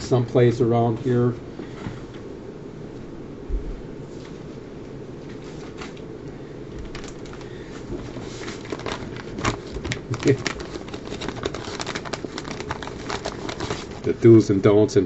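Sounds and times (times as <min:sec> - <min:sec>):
low room hum: 0:00.0 - 0:15.0
paper rustling and clicks: 0:06.8 - 0:14.2.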